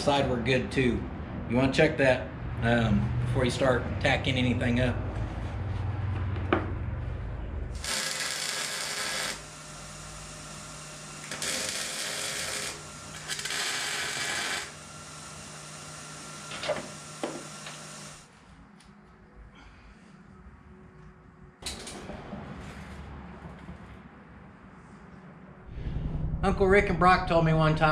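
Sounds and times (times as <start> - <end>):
arc welder hissing: 7.8 - 18.3
low hum: 19.3 - 27.9.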